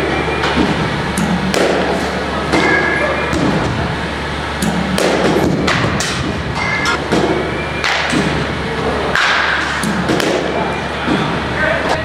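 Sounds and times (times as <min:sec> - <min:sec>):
hum of large hall: 0:00.0 - 0:12.0
balls hitting netting: 0:00.4 - 0:03.7, 0:04.6 - 0:08.5, 0:09.1 - 0:11.4
bat hitting ball: 0:00.5 - 0:03.6, 0:04.7 - 0:08.4, 0:09.1 - 0:10.7.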